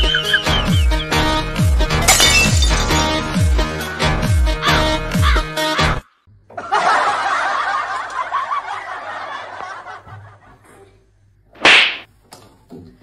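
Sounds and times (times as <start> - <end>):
crowd laughing: 6.5 - 10.7.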